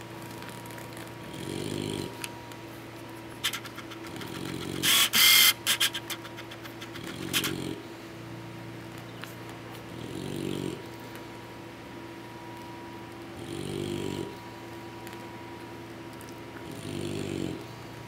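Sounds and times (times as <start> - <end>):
dog snoring: 1.2 - 2.2, 3.9 - 5.1, 6.8 - 7.8, 9.9 - 10.9, 13.4 - 14.4, 16.6 - 17.8.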